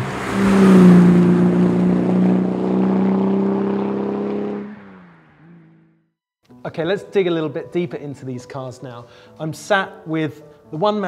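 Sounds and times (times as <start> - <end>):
car engine at high revs passing: 0.0 - 6.0.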